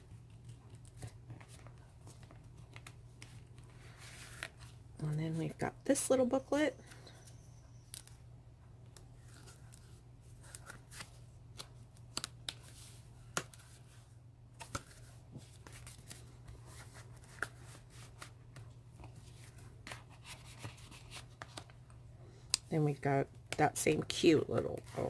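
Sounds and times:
low steady hum: 0.0 - 25.0
paper pages turning: 0.1 - 4.8, 8.9 - 14.0, 14.6 - 21.8.

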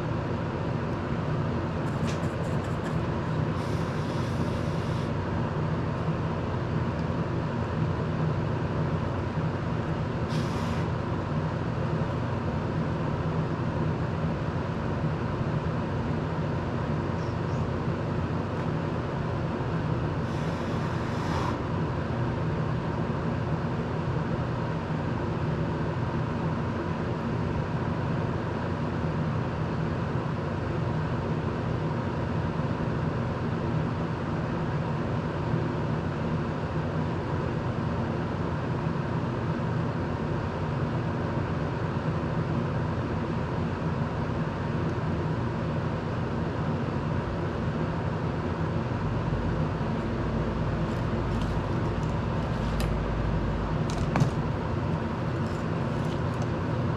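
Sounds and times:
brief hisses: 10.3 - 10.9
electric fan whirring: 41.6 - 56.9.

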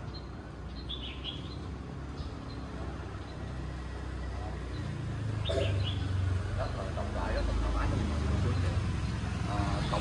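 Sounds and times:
high bird chirps: 0.0 - 3.5
traffic engine hum: 0.0 - 10.0.

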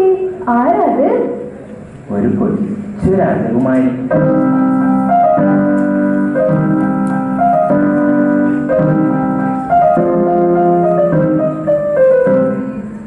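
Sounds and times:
electric piano chords: 3.4 - 13.0.

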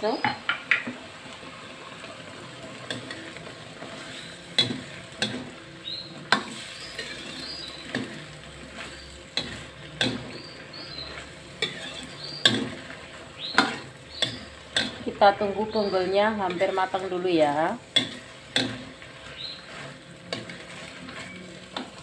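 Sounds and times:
food sizzling: 0.0 - 22.0
ladle scraping a wok: 2.8 - 22.0.

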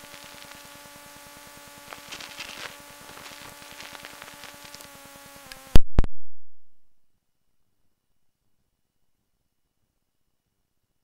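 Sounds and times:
faint crackles: 0.0 - 5.8
recording hiss and hum: 0.0 - 11.0.

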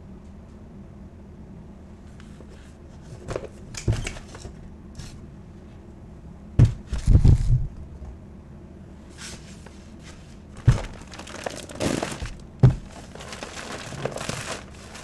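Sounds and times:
loud thumps: 6.6 - 7.5, 10.6 - 13.1.

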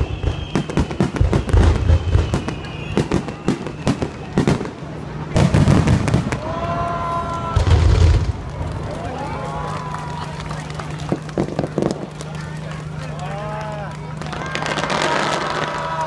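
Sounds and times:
fireworks booms: 0.0 - 9.0
fireworks crackling and popping: 0.0 - 16.0.

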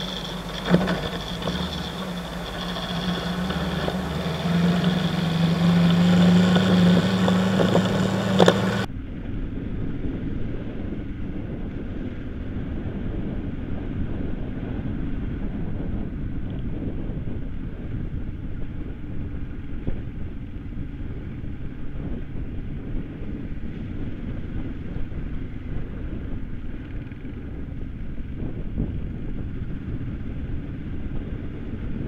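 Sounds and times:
motorcycle engine under load: 0.0 - 14.3.

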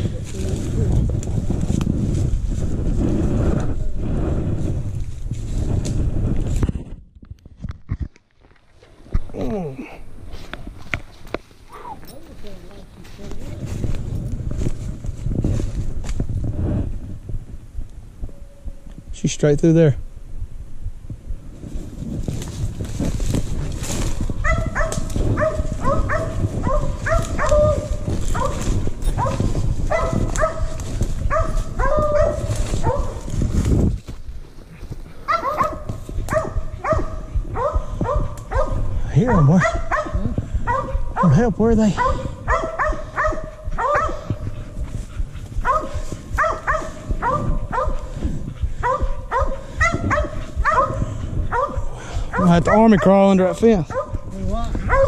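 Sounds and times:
brush rustling: 0.0 - 6.8, 7.9 - 16.9, 21.4 - 55.0
footsteps: 0.0 - 17.2, 21.5 - 55.0
hounds barking short barks: 24.4 - 33.3, 35.3 - 44.4, 45.6 - 48.1, 48.8 - 53.2, 53.9 - 54.2.

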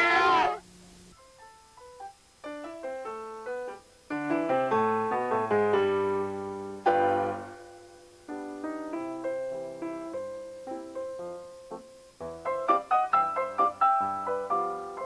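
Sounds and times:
piano music: 1.2 - 15.0.

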